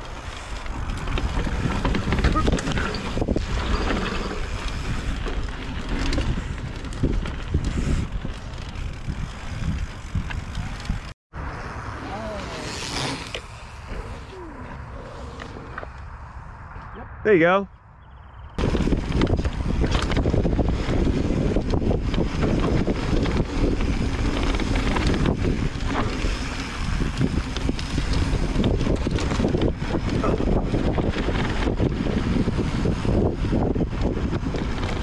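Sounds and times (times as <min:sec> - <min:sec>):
bike rattling over rocky trail: 0:00.0 - 0:11.2, 0:18.6 - 0:35.0
wind buffeting microphone: 0:00.0 - 0:11.2, 0:18.0 - 0:35.0.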